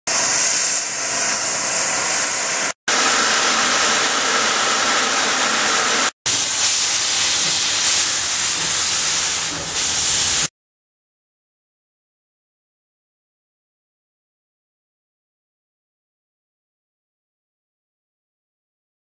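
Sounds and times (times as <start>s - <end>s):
steam locomotives hissing: 0.1s - 10.5s.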